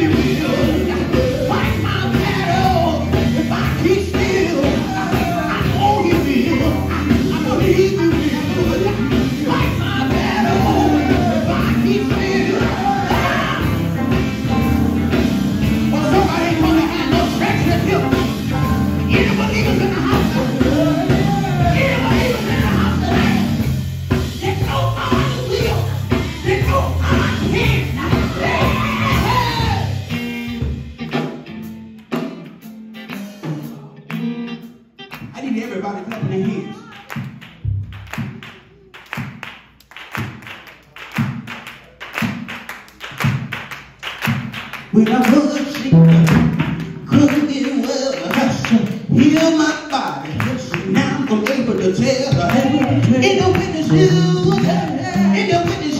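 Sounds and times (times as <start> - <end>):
man singing into a microphone: 0.0 - 13.8, 15.9 - 18.4, 19.1 - 23.6, 44.9 - 46.4, 47.0 - 55.9
electric bass: 0.0 - 35.4, 45.9 - 47.6, 50.3 - 55.9
electric guitar: 0.0 - 35.4
live band music: 0.0 - 55.9.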